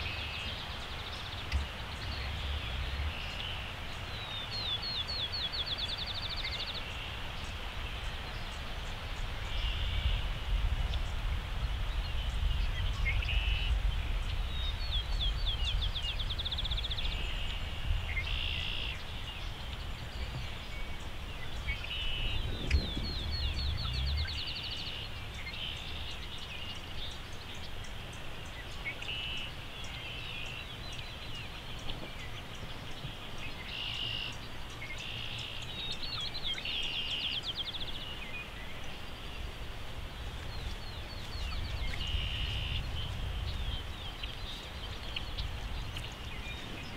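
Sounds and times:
songbirds singing: 0.0 - 46.9
steady low rumble: 9.4 - 26.5.

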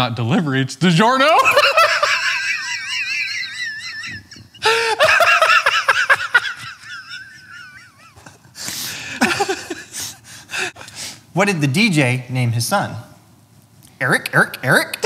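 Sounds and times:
men laughing hard: 1.3 - 10.8.

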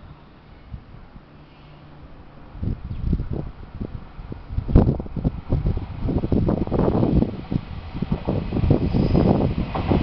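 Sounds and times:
wind buffeting microphone: 2.2 - 10.0.

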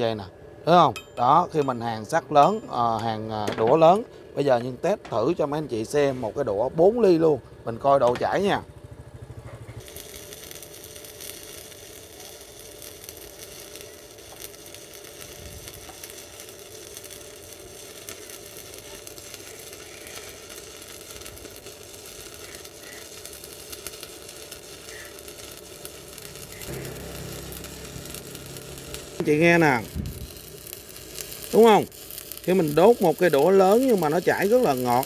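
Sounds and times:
welding arc sizzling crackle: 9.2 - 35.0.

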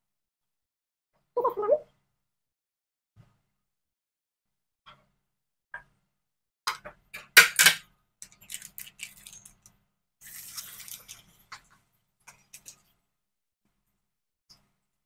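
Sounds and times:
hot oil crackling: 8.2 - 12.8
fritter sizzling in oil: 10.2 - 11.6.

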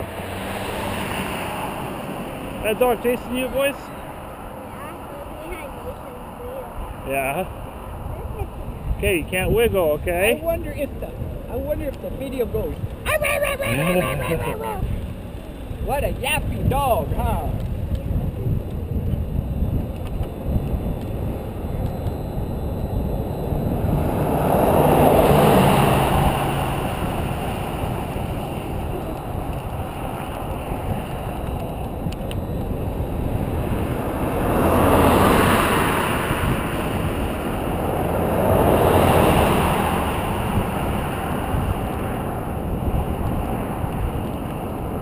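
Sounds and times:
cars passing: 0.0 - 45.0
wind rumble on microphone: 5.4 - 45.0.

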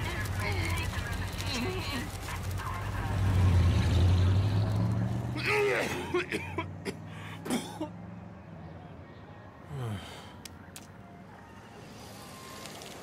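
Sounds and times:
low engine hum: 0.0 - 5.4.

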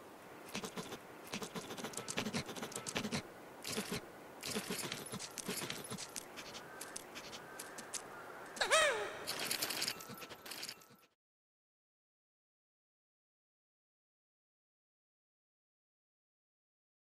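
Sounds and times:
rapid scratching and clicking: 0.5 - 8.0.

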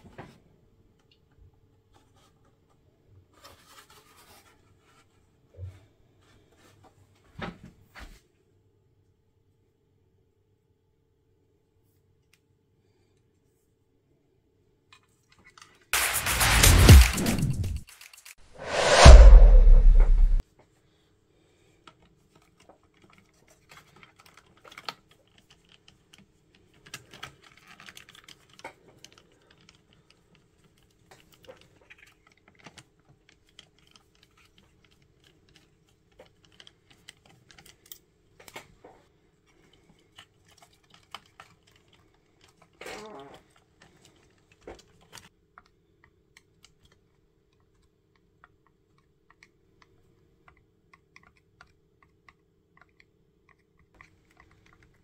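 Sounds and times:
screwdriver clicks and taps: 47.6 - 55.0.

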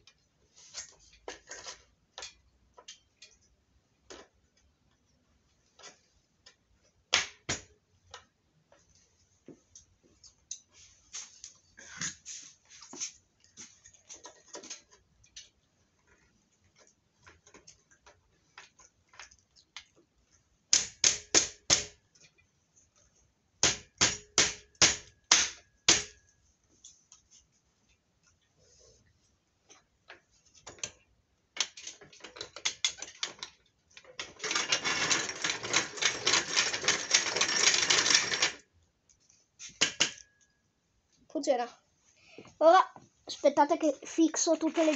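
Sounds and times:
bench vise clicking and rattling: 31.6 - 38.7, 39.7 - 40.3.

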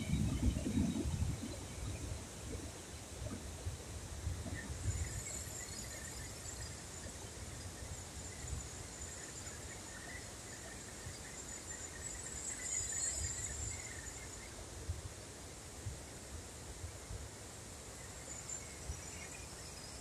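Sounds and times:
insects humming: 0.0 - 14.8, 16.8 - 20.0
faint chirps: 4.4 - 14.6, 17.8 - 20.0.

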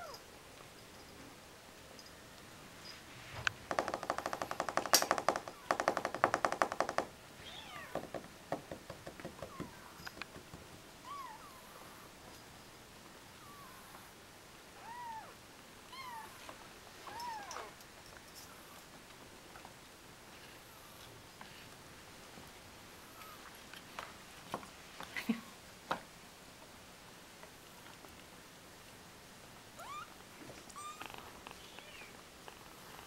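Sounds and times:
rapid rattling taps: 3.7 - 7.1, 8.0 - 10.8.

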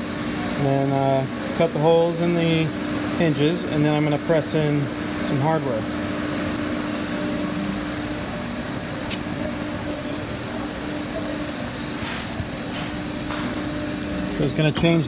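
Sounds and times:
machinery drone with hiss: 0.0 - 14.7
faint high whine: 3.3 - 15.0.

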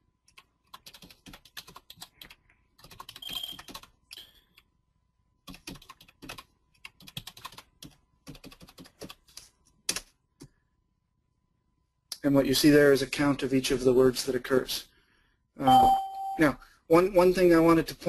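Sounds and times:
computer keyboard typing: 0.2 - 4.7, 5.4 - 10.1.

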